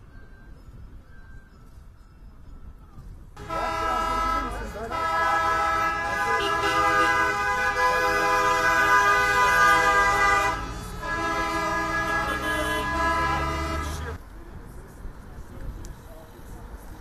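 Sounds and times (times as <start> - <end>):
boat horns blasting: 3.4 - 14.2.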